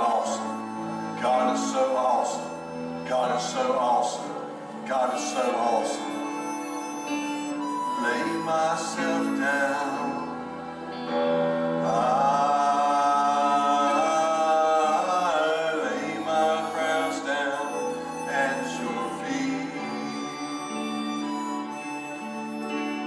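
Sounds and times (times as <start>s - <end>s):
person singing gospel: 0.0s - 22.8s
held instrumental chords: 0.0s - 23.0s.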